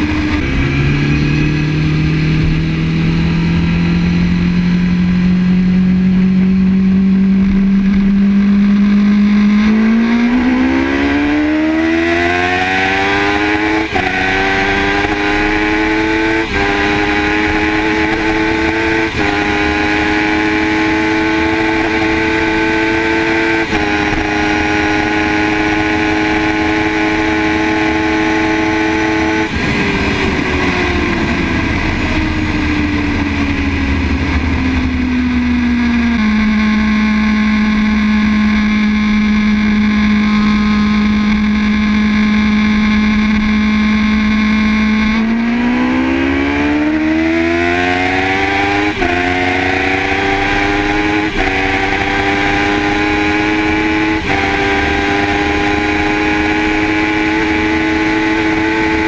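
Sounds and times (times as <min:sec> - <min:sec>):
motorbike engine accelerating: 0:00.0 - 0:59.0
heavy wind noise: 0:28.4 - 0:36.9.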